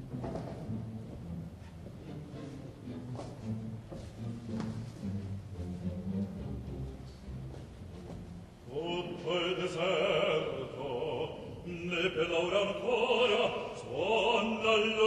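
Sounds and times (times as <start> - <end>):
soft orchestral music: 0.0 - 15.0
operatic baritone singing: 8.6 - 15.0.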